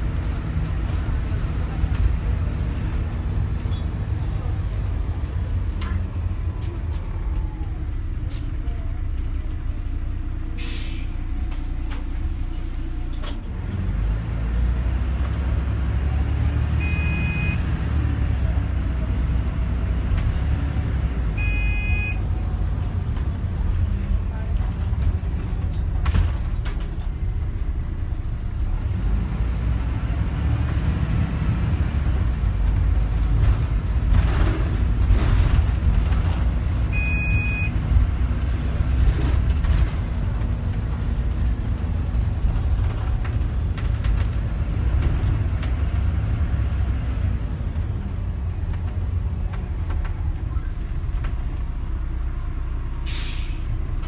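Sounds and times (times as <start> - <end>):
bus engine rumble: 0.0 - 54.0
short electronic beep: 16.8 - 17.6, 21.4 - 22.2, 37.0 - 37.8
brief hiss: 53.1 - 53.6.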